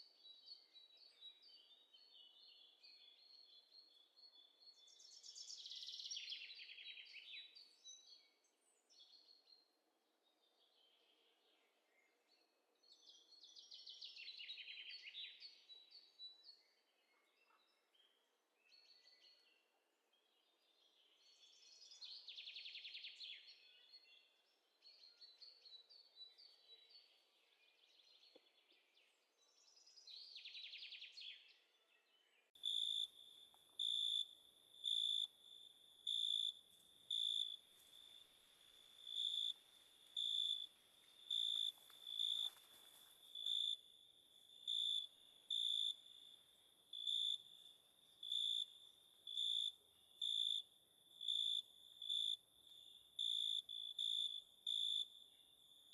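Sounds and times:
insects trilling: 32.6s - 55.4s
cricket chirping: 32.6s - 55.9s.

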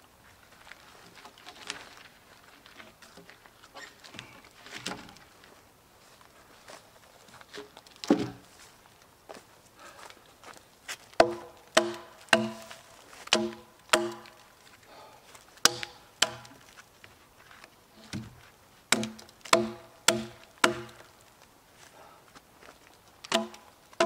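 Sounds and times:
hatchet chopping logs: 11.2s - 14.5s, 15.6s - 16.7s, 18.9s - 21.2s, 23.2s - 24.0s.

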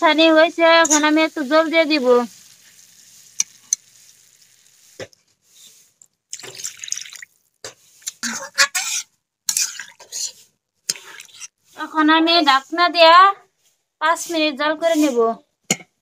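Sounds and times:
water splashing into hot gravy: 0.8s - 8.2s, 10.9s - 11.5s.

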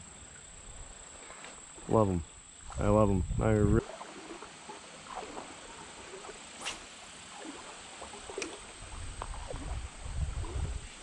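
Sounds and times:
water splashing around legs: 3.8s - 11.0s.

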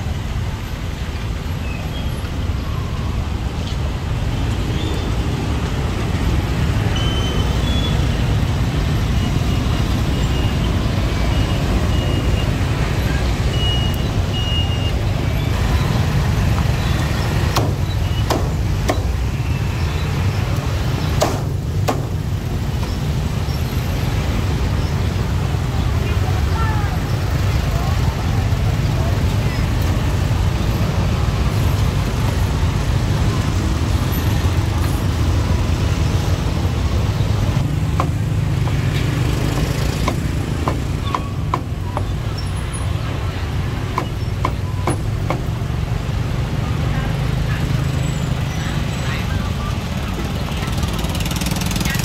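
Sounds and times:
street traffic rumble: 0.0s - 52.0s
cleaver chopping on wooden block: 37.9s - 38.8s, 39.5s - 42.1s.

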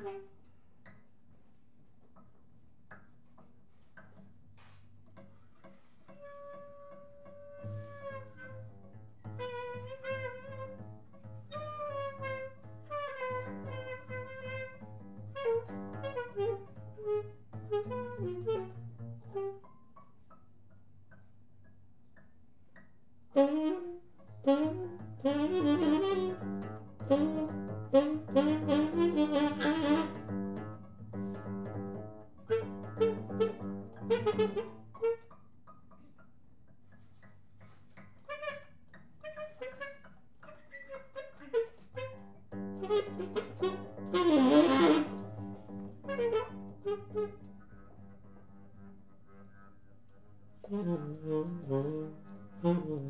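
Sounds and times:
tenor saxophone playing: 0.0s - 1.0s, 5.7s - 20.1s, 23.3s - 35.9s, 37.2s - 53.0s
double bass playing: 6.1s - 20.0s, 23.4s - 35.2s, 41.1s - 53.0s.

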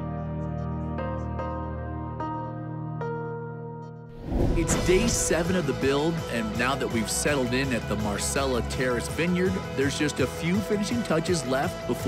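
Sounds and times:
soft background music: 0.0s - 12.0s.

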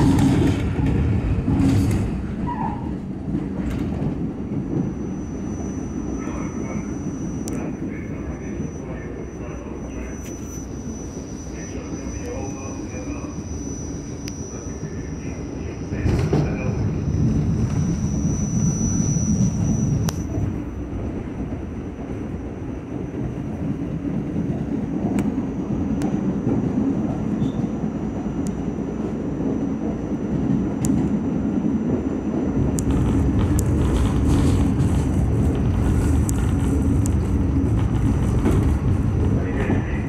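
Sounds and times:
subway wheels rumbling on rail: 0.0s - 40.0s
thin high whine: 4.7s - 20.8s.

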